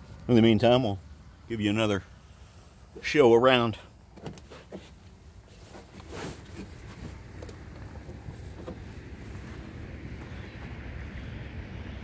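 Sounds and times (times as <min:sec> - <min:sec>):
wind rumble on microphone: 0:06.5 - 0:12.0.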